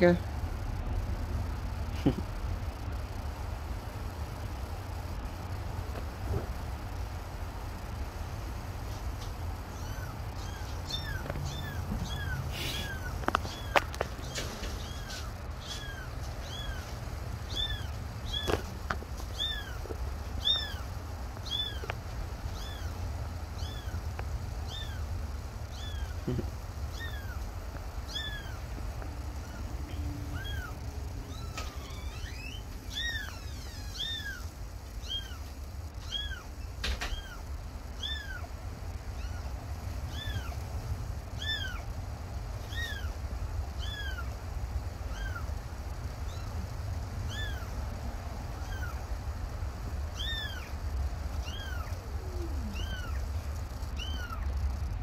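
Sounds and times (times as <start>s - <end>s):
low steady rumble: 0.0s - 55.0s
kitten mewing: 9.6s - 16.9s, 19.4s - 21.9s, 22.5s - 25.1s, 25.7s - 28.7s, 29.4s - 37.4s, 38.0s - 38.5s, 39.1s - 40.6s, 41.4s - 41.9s, 42.6s - 43.2s, 43.8s - 44.4s, 45.0s - 45.5s, 47.2s - 47.8s, 48.5s - 49.1s, 50.1s - 53.2s, 54.0s - 54.5s.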